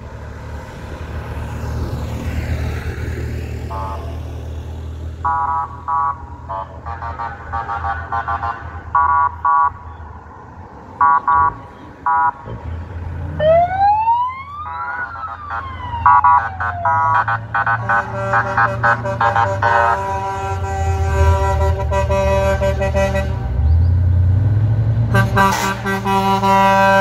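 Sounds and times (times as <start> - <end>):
truck engines running: 0.0 - 27.0
truck horn blasts: 3.6 - 4.3, 5.2 - 9.8, 16.2 - 23.8, 25.1 - 27.0
siren wailing: 5.2 - 6.8, 8.4 - 9.9, 11.0 - 12.5, 13.4 - 20.0.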